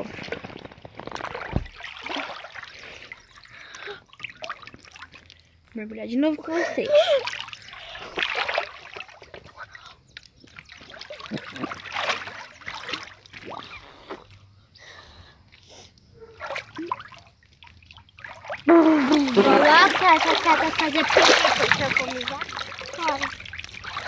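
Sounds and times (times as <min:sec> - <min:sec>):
muffled underwater sloshing and bubbling: 0:16.0 - 0:24.0.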